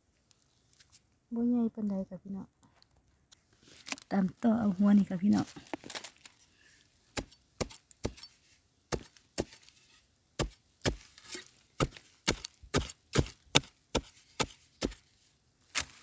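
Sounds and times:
digging blade striking dry soil: 0:07.1 - 0:16.0.

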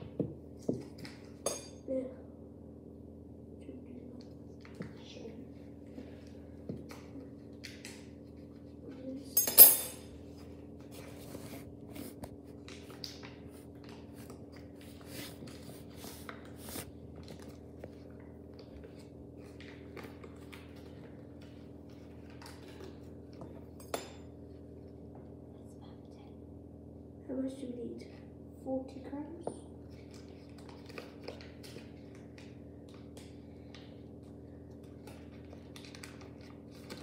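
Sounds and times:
kitchen utensils and dishes clinking: 0:09.4 - 0:10.1.

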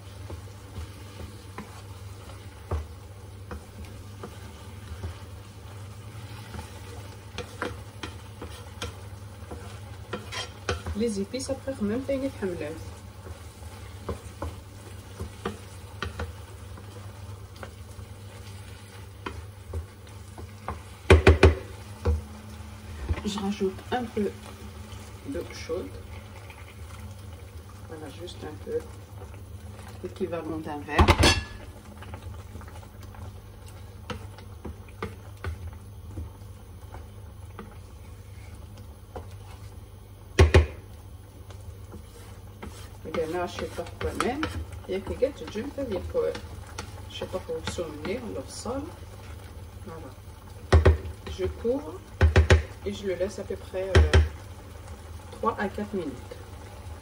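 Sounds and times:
frying hiss: 0:00.0 - 0:57.0
spatula knocking and scraping pan: 0:00.2 - 0:05.3, 0:06.4 - 0:17.0, 0:19.2 - 0:22.3, 0:40.3 - 0:40.8, 0:41.9 - 0:48.4, 0:50.7 - 0:52.8, 0:53.8 - 0:54.4
spatula scraping a pan: 0:06.1 - 0:11.0, 0:41.9 - 0:48.4.

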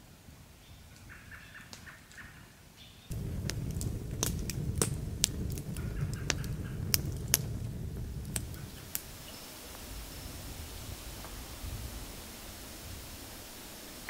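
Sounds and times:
campfire crackling and popping: 0:03.1 - 0:14.0
low rumble of flame: 0:03.1 - 0:14.0.

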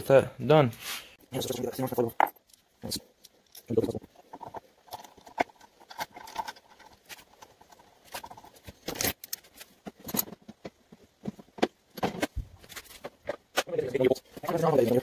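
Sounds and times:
metal parts clicking and scraping: 0:01.9 - 0:13.6.

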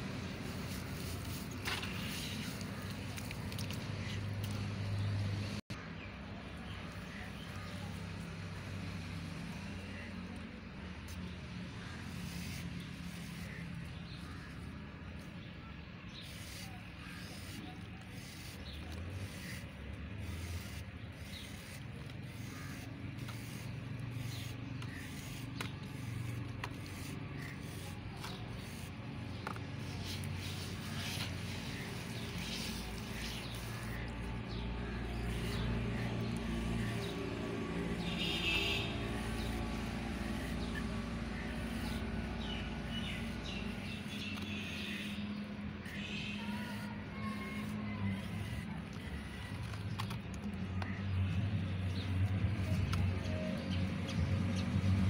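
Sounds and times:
knife scraping cement block: 0:16.1 - 0:35.7, 0:43.0 - 0:51.0.

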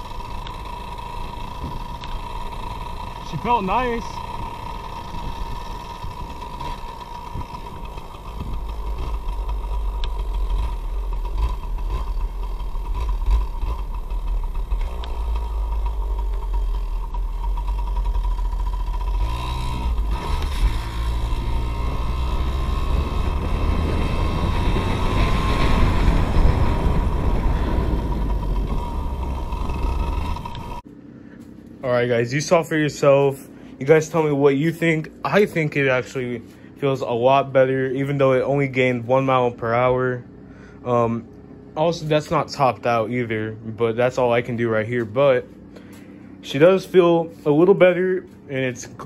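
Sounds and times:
two-stroke motorbike engine: 0:00.0 - 0:49.0
wind rumbling on microphone: 0:05.1 - 0:09.3, 0:22.6 - 0:30.8.

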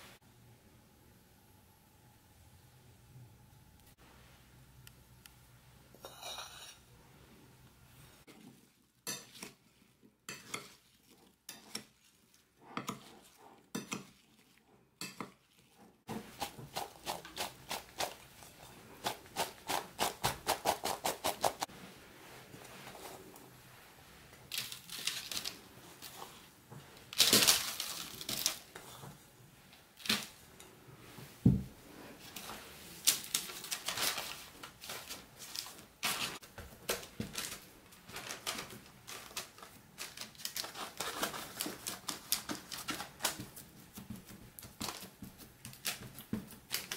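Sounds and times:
metal spoon scraping in a bowl: 0:06.0 - 0:06.9
quick regular stirring strokes: 0:08.2 - 0:29.0.

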